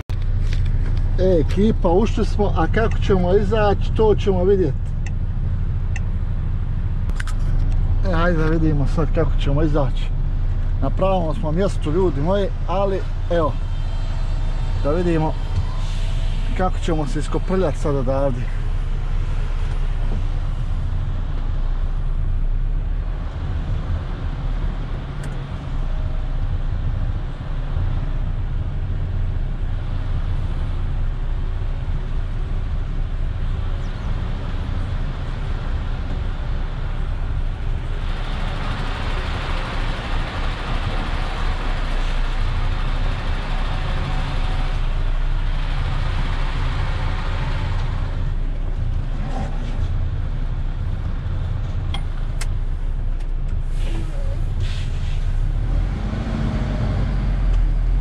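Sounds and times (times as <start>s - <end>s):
diesel truck engine rumbling: 0.0s - 58.0s
rushing noise: 10.7s - 22.3s.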